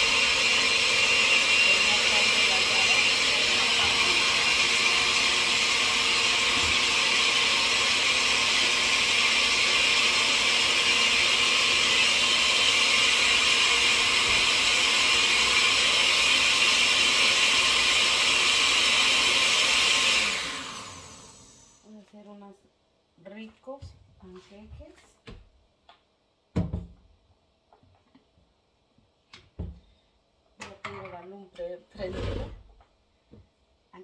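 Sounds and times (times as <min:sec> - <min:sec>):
blender running: 0:00.0 - 0:21.8.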